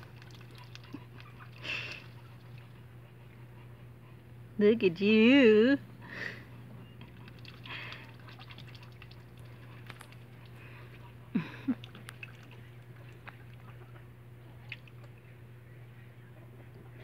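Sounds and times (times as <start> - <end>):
duck dabbling in water: 0.0 - 2.9, 6.9 - 15.2.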